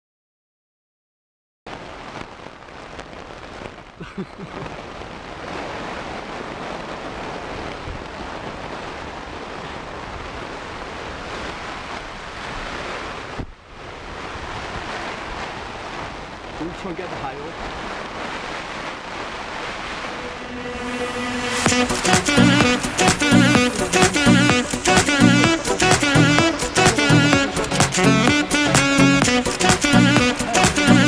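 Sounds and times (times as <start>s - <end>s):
rain on tent fabric: 1.7s - 31.0s.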